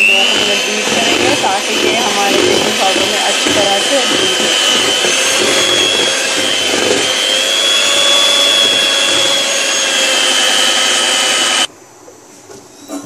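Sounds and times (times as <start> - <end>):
electric hand mixer whining: 0.0 - 11.7.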